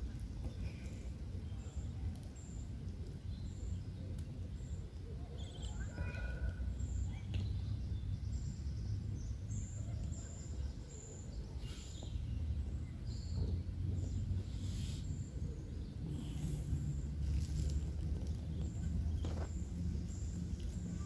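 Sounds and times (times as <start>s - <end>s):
low uneven rumble: 11.6s - 21.0s.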